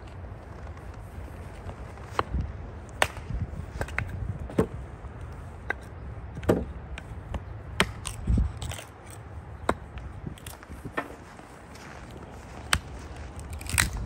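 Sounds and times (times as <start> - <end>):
hatchet chopping wood: 5.6 - 6.7, 7.3 - 8.8.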